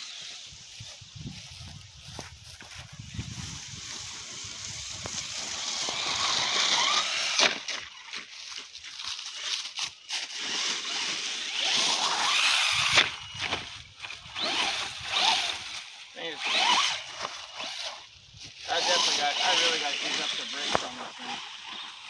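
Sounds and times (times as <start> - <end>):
tyres crackling in leaves: 0.0 - 22.0
electric motor whining: 2.7 - 8.1, 10.4 - 22.0.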